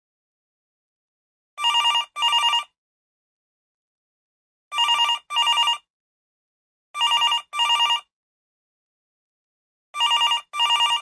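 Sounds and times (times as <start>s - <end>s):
old telephone ringing: 1.6s - 2.7s, 4.8s - 5.9s, 7.0s - 8.1s, 10.0s - 11.0s.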